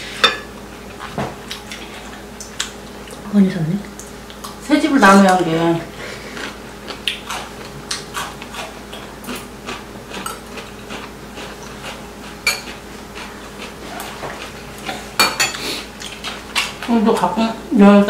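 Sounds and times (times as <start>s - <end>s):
cutlery clinking on ceramic bowls: 12.5s - 12.7s, 15.2s - 15.6s.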